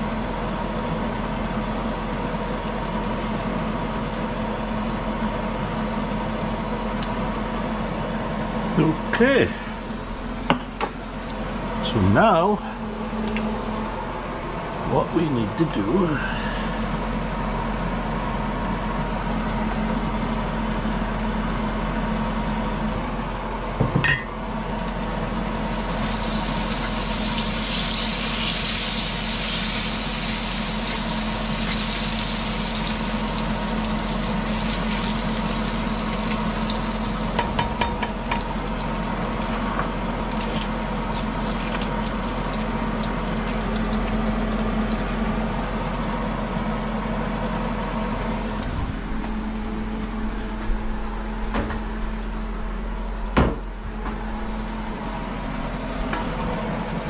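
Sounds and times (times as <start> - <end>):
steady low hum: 0.0 - 57.0
food sizzling in a pan: 25.0 - 44.9.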